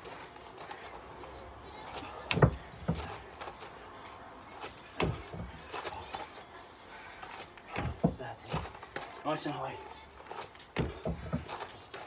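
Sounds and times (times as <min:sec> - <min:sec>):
feet thudding on wooden platform: 0:02.0 - 0:03.2, 0:04.9 - 0:06.1, 0:07.7 - 0:09.1, 0:10.2 - 0:12.0.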